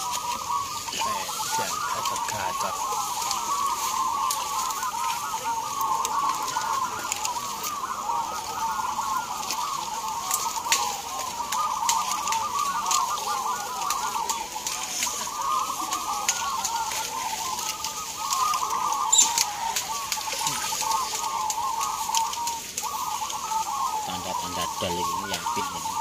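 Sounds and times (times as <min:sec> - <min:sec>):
doves cooing: 0:00.0 - 0:26.0.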